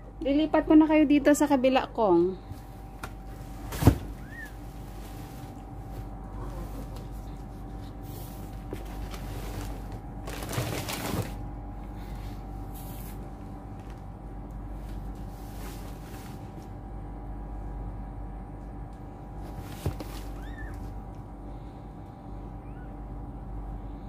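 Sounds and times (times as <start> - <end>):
faint hum: 0.0 - 24.0
rustling and scraping: 3.3 - 11.4, 14.8 - 16.7, 19.4 - 20.8.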